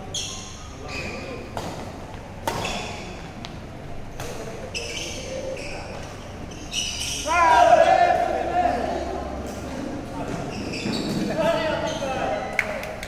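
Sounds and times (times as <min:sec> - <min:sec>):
shoes squeaking on court floor: 0:00.0 - 0:07.3, 0:09.5 - 0:12.5
rackets hitting shuttlecock: 0:01.5 - 0:03.6.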